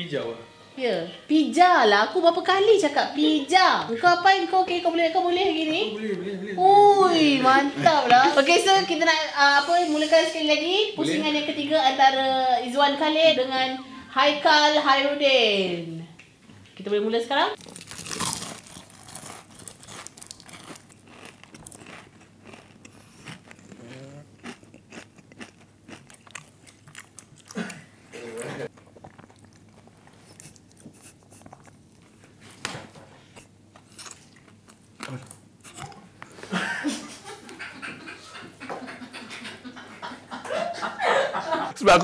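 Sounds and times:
crunching fried chicken: 17.6s - 32.2s.

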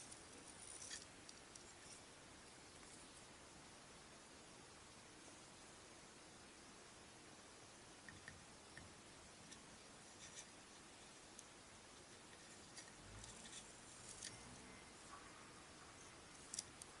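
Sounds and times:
steady hiss: 0.0s - 17.0s
light rustles of thread: 9.4s - 17.0s.

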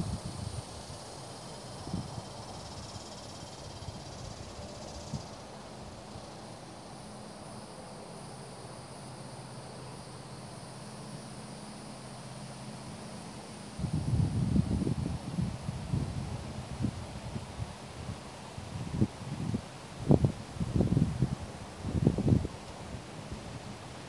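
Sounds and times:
insects chirring: 0.0s - 24.0s.

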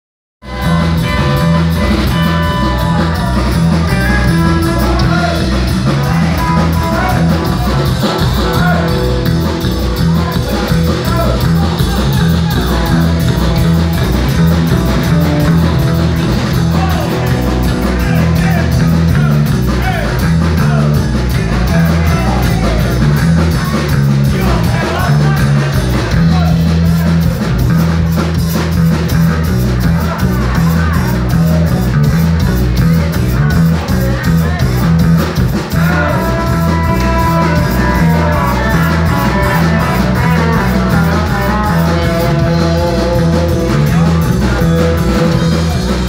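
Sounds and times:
drum kit: 0.4s - 46.0s
electric guitars: 0.4s - 46.0s
live rock band playing: 0.4s - 46.0s.

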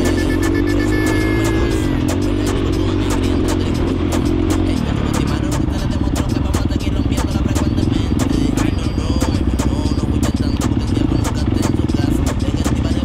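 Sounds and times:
dirt bike engine running: 0.0s - 13.0s.

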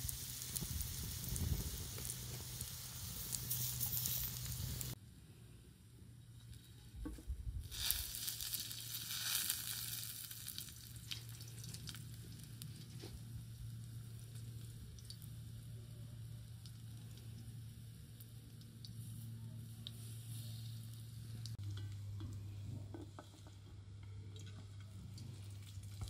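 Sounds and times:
hot oil sizzling in a pan: 0.0s - 5.0s, 7.6s - 13.0s
oil crackling and popping: 0.0s - 5.0s, 6.6s - 19.1s, 23.1s - 26.0s.

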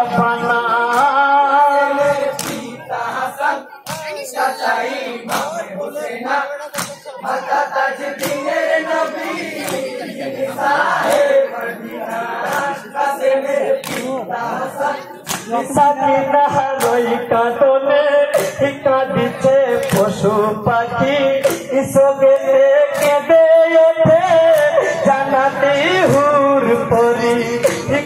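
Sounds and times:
men singing in chorus: 0.0s - 28.0s
sharp percussive beat: 0.1s - 28.0s.

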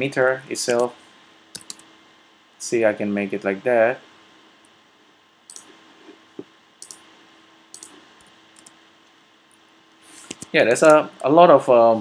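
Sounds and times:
faint steady hum: 0.0s - 12.0s
computer mouse clicks: 1.5s - 1.9s, 5.5s - 5.8s, 6.8s - 7.0s, 7.7s - 8.8s, 10.3s - 11.0s.

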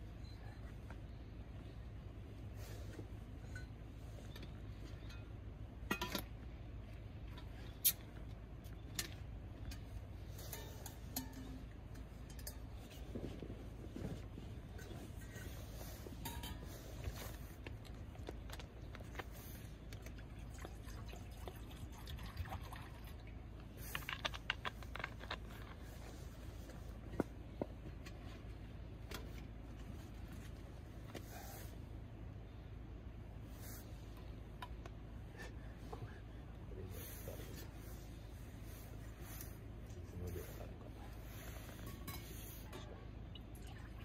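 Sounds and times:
steady low rumble: 0.0s - 44.0s
metal cookware clinking: 10.4s - 13.0s.

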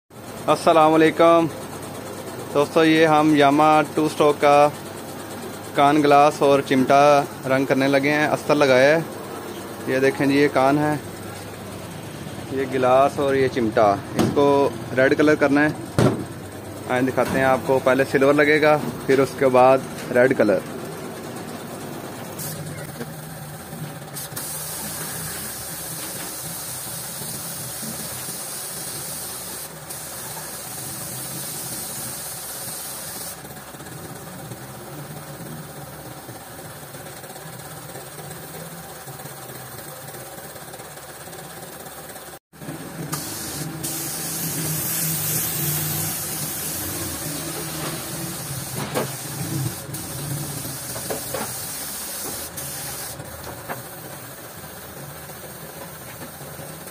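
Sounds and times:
motor hum: 0.2s - 28.3s, 33.4s - 51.6s
paint spray gun hissing: 22.2s - 34.3s, 43.1s - 56.9s.

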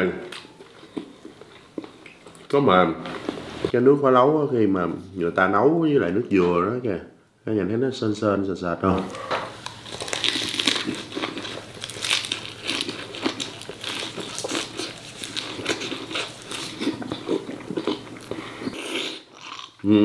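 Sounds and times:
biting and chewing food: 9.6s - 19.8s.

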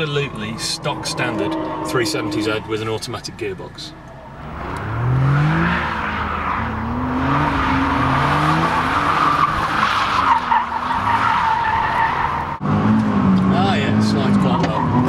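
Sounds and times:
tyres squealing on tarmac: 0.0s - 4.4s, 5.7s - 12.6s
car engine revving: 0.0s - 15.0s.

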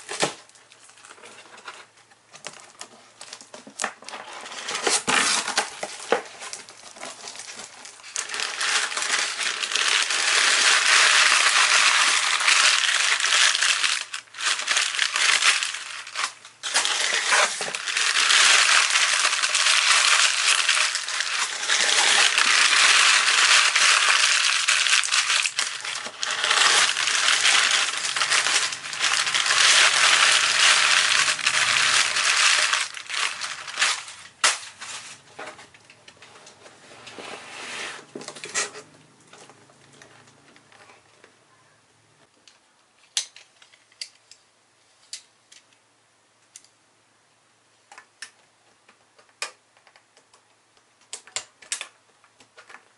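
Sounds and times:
paper crinkling and rustling: 0.0s - 35.5s.

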